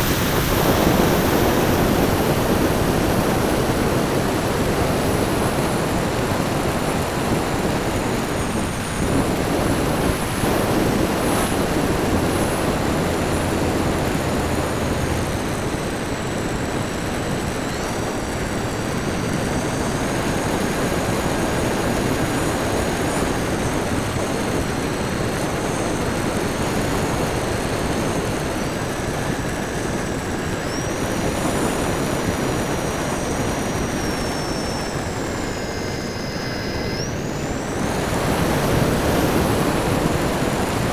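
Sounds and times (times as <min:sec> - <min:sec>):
motor and propeller whine: 0:00.0 - 0:40.9
wind rush on microphone: 0:00.0 - 0:40.9.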